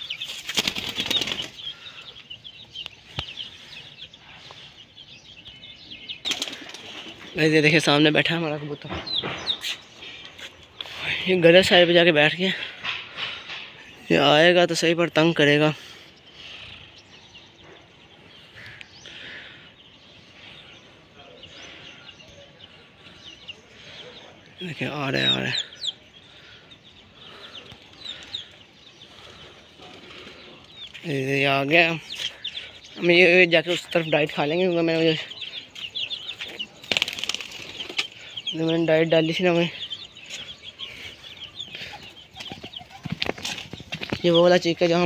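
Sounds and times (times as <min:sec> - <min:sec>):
outdoor background noise: 0:00.0 - 0:45.0
small birds chirping: 0:00.0 - 0:45.0
pigeon wings flapping: 0:00.3 - 0:01.6, 0:06.3 - 0:06.8, 0:36.8 - 0:38.0.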